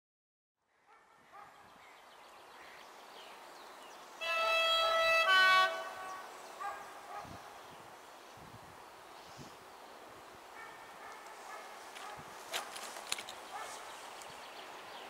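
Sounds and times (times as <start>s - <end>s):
locomotive horn two notes: 4.2s - 6.3s.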